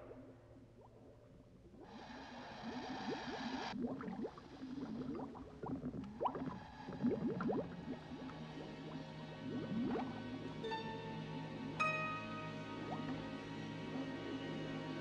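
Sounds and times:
bubbling exhale underwater: 0:00.0 - 0:10.4
regulator hissing inhale: 0:01.8 - 0:04.9.

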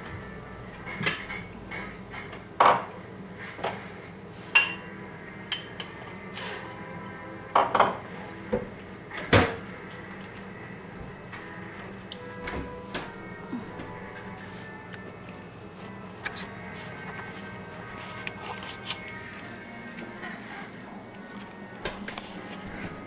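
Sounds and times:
cutlery clinking against dishes: 0:00.8 - 0:03.8, 0:04.5 - 0:06.9, 0:07.6 - 0:08.1.

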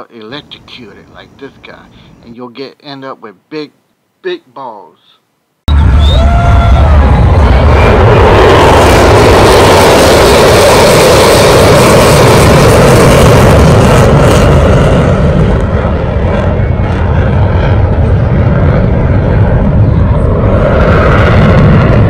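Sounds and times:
fighter jet roaring past: 0:05.7 - 0:22.0.

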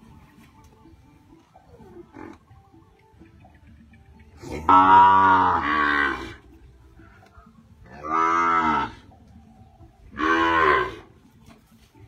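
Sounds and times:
young cattle mooing: 0:04.6 - 0:06.4, 0:07.9 - 0:09.1, 0:10.1 - 0:11.1.

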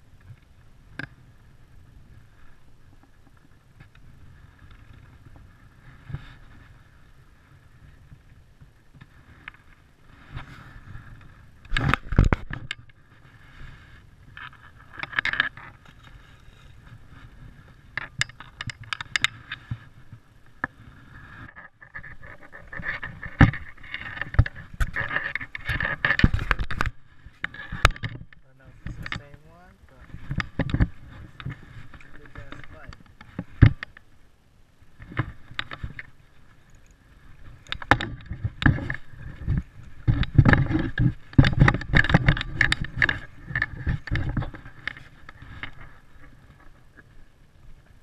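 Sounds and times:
scrapes and knocks on rocks: 0:09.0 - 0:34.1, 0:36.8 - 0:47.1.

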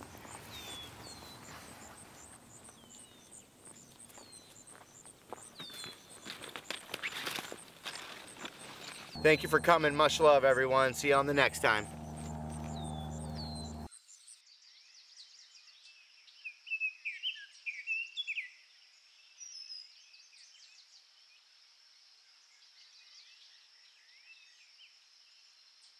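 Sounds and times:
birds chirping: 0:00.0 - 0:13.9
faint steady high buzz: 0:09.1 - 0:13.9
low steady hum: 0:09.2 - 0:13.9.

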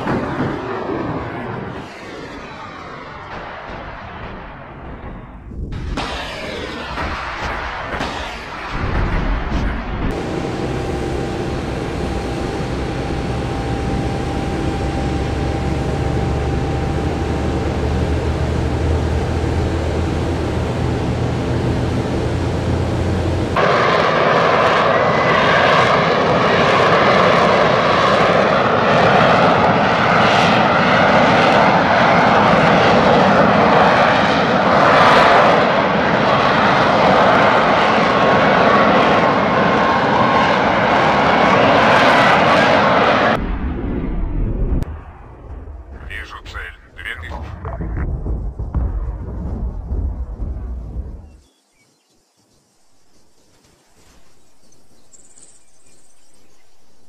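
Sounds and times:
jet aircraft hovering: 0:00.0 - 0:45.2, 0:45.9 - 0:48.8
jet engine idling on ground: 0:09.6 - 0:43.6.

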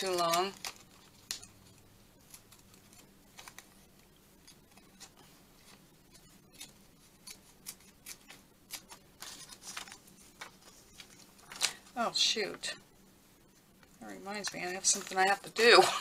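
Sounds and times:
scissors snipping paper: 0:00.0 - 0:11.8.

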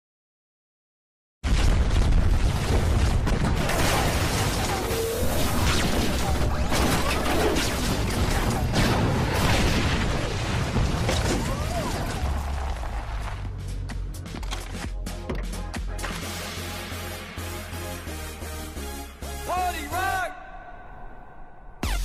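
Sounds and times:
booms and crashes: 0:01.4 - 0:12.6
dramatic music: 0:13.1 - 0:22.0.

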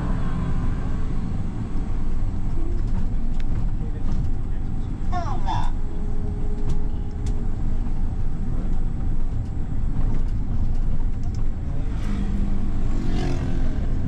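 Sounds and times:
bus engine and tyres rumbling: 0:00.0 - 0:14.0
faint clicks and rattles: 0:06.5 - 0:11.6.

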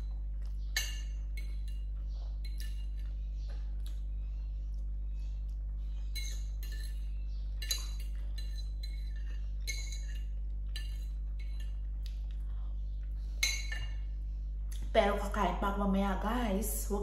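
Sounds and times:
steady low hum: 0:00.0 - 0:17.0
cutlery clinking against dish: 0:06.1 - 0:11.8.

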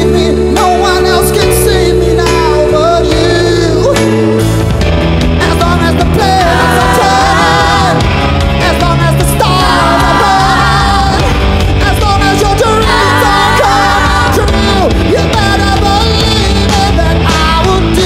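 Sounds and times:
singers singing in harmony: 0:00.0 - 0:04.7, 0:05.9 - 0:11.5, 0:12.2 - 0:18.0
loud rock band playing: 0:00.0 - 0:18.0.

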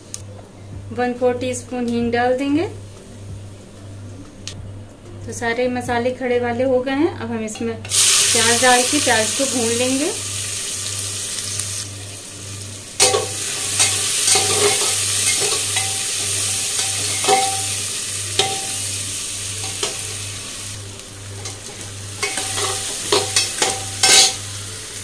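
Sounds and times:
onions sizzling in hot oil: 0:07.8 - 0:25.0
metal spatula scraping pot: 0:21.4 - 0:24.5.

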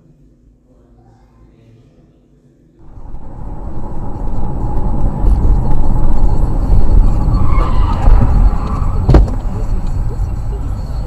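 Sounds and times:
car engine and tyre rumble: 0:02.8 - 0:11.0.

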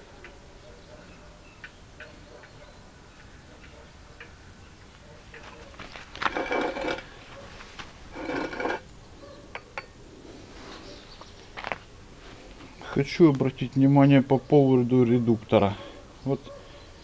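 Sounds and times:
metallic whirr of spun gear: 0:06.3 - 0:07.0, 0:08.1 - 0:08.8.

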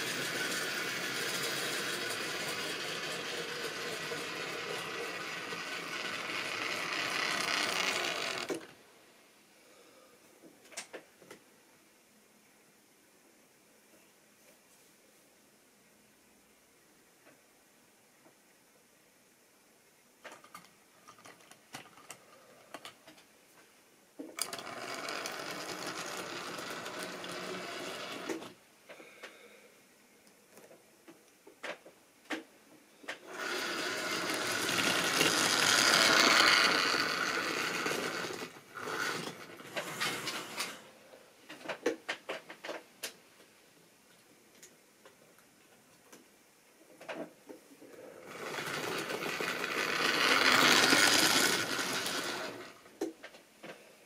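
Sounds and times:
model train motor whirring: 0:00.0 - 0:08.7, 0:24.4 - 0:28.6, 0:33.2 - 0:40.9, 0:48.0 - 0:52.9
wheels clicking over rail joints: 0:00.0 - 0:08.7, 0:24.4 - 0:28.5, 0:33.2 - 0:40.8, 0:48.2 - 0:52.8.

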